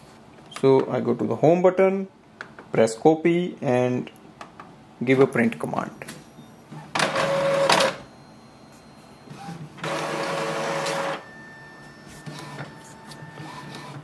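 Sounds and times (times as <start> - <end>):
inkjet printer whirring: 6.7 - 8.0, 9.3 - 14.0.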